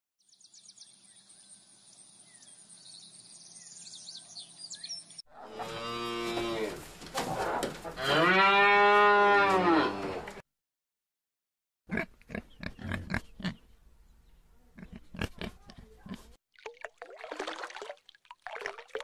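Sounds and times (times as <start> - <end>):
cows mooing: 5.4 - 6.8, 7.8 - 10.4.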